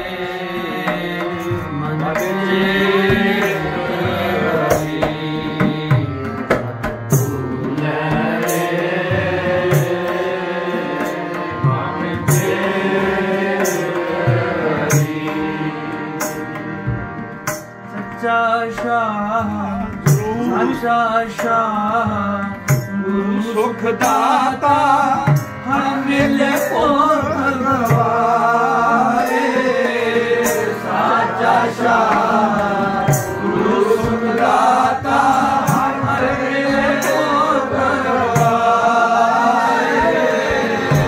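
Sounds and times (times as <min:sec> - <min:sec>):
person singing: 0:00.0 - 0:06.6, 0:18.2 - 0:41.0
harmonium chords: 0:00.0 - 0:41.0
tabla rhythm: 0:00.0 - 0:41.0.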